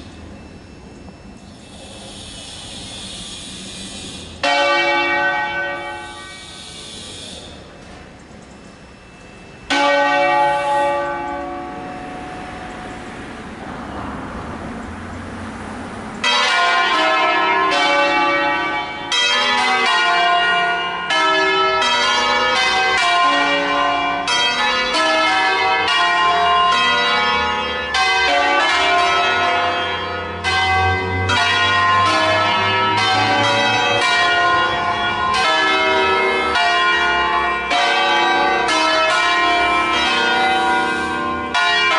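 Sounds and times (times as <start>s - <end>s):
church bells ringing: 0.0s - 2.5s, 4.4s - 8.2s, 8.8s - 14.5s, 16.2s - 41.9s.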